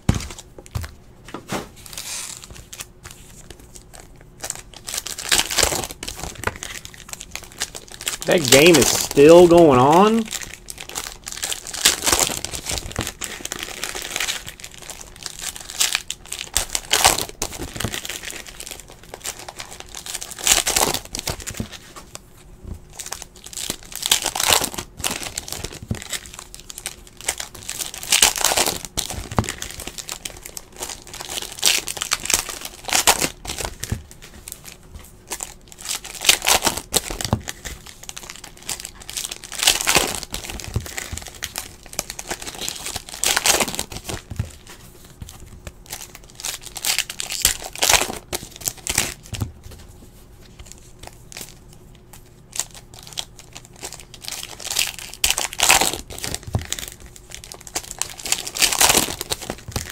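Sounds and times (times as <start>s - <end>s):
foil wrappers crinkling and tearing: 1.8s - 59.9s
cards shuffling: 8.0s - 10.4s.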